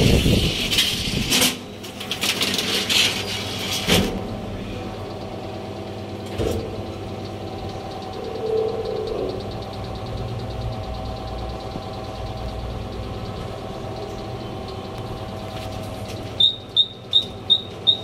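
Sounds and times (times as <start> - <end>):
elevator car starting: 0.0 - 18.0
elevator drive hum: 0.0 - 18.0.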